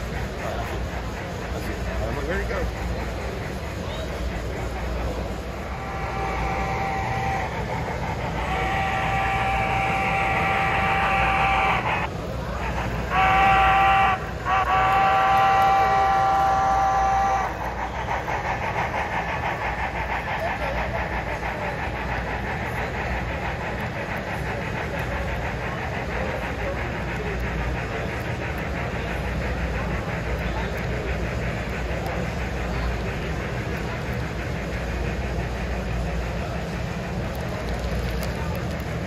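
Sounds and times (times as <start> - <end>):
model train clicking: 0.0 - 39.0
model train whistle: 5.7 - 7.5, 8.4 - 12.1, 13.1 - 17.8.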